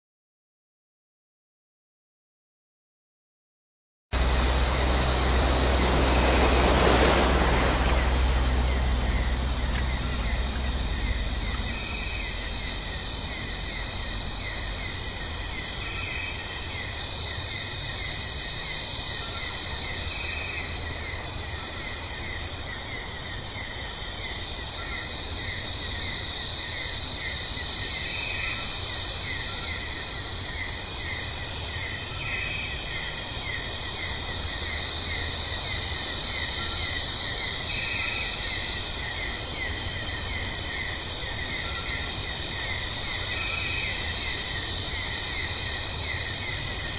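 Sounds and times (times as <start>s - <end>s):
low rumble: 4.2s - 15.2s
insects chirring: 4.2s - 46.9s.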